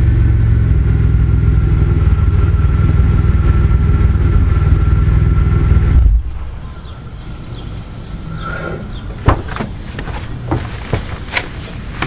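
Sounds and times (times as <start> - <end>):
car exhaust idling: 0.0 - 6.6.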